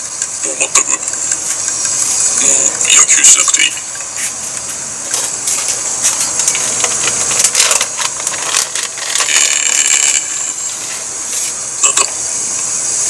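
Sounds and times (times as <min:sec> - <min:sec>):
steady high hiss: 0:00.0 - 0:13.0
plastic bag rustling: 0:05.2 - 0:10.2.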